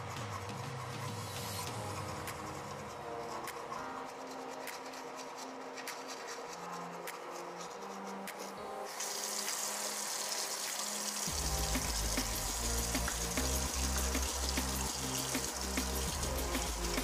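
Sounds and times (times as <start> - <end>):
quiet background music: 0.0 - 17.0
steady rushing hiss: 0.0 - 17.0
toothbrush scrubbing teeth: 1.8 - 17.0
heavy bass line: 11.3 - 17.0.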